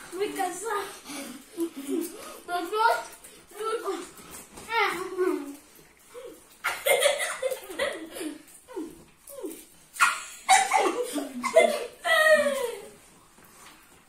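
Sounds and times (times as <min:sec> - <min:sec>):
people laughing: 0:06.7 - 0:08.6, 0:10.0 - 0:12.9.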